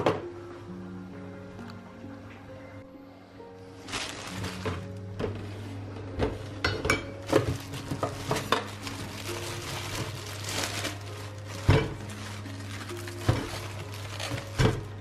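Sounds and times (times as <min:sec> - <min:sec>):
plastic bag rustling: 0:03.6 - 0:15.0.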